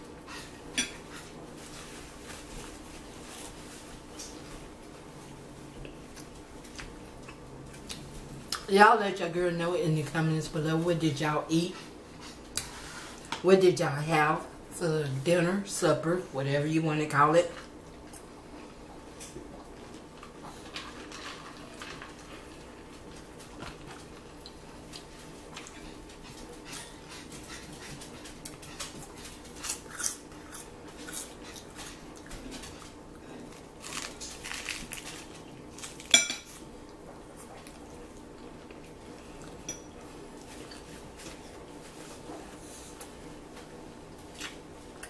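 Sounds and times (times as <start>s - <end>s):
chewing: 5.7s - 8.7s, 18.0s - 43.1s
cutlery clinking against dishes: 36.1s - 36.6s.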